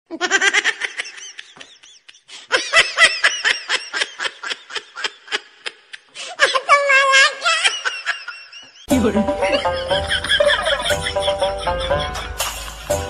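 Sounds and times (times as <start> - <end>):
high-pitched laughter: 0.1 - 12.8.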